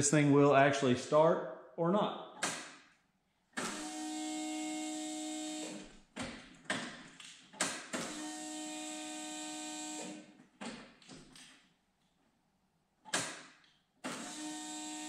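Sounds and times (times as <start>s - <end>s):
electric fuel pump whining: 3.6s - 5.9s, 8.0s - 10.3s, 14.0s - 15.0s.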